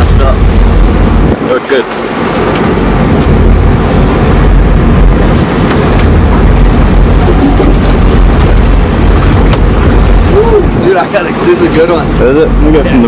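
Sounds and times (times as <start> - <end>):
boat engine rumble: 0.0 - 13.0
water rushing past hull: 0.0 - 13.0
wind noise on microphone: 0.0 - 13.0.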